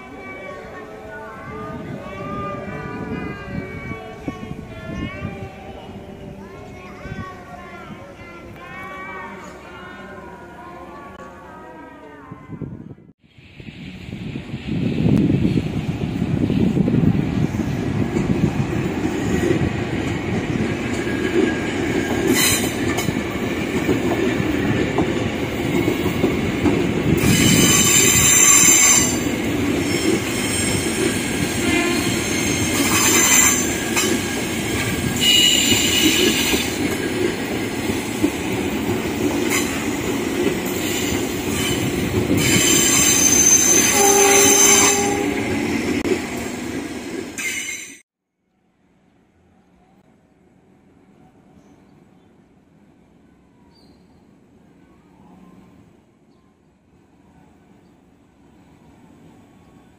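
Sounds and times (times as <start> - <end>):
train wheels rumbling on rail: 13.3 - 48.0
high-pitched wheel squeal: 42.4 - 45.4.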